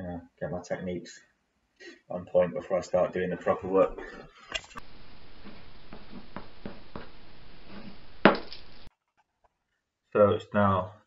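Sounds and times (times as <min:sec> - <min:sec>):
steady hiss: 0:03.6 - 0:08.9.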